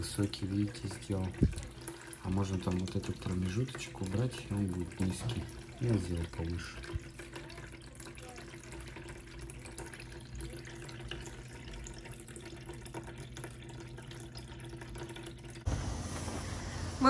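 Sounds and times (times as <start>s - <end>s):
faint pump hum: 0.0s - 17.0s.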